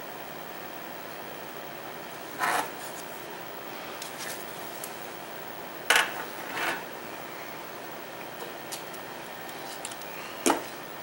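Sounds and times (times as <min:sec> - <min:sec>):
circuit board scraping on bench: 0:02.3 - 0:02.9, 0:06.4 - 0:06.9.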